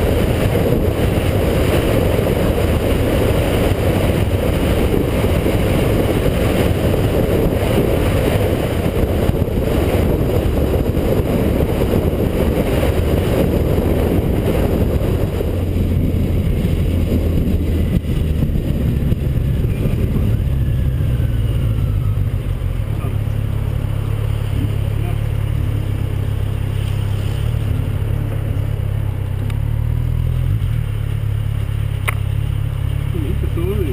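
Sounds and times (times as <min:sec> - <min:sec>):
motorcycle engine drone: 0:00.0 - 0:33.9
wind rushing over microphone: 0:00.0 - 0:33.9.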